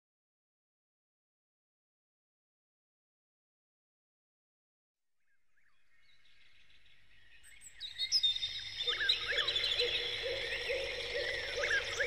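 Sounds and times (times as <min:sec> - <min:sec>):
wild birds chirping and trilling: 0:05.6 - 0:12.0.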